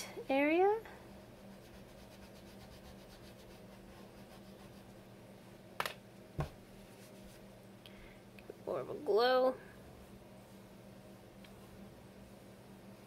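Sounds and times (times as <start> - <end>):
low room hum: 0.0 - 13.0
chalk pastel scratching on paper: 1.2 - 5.0.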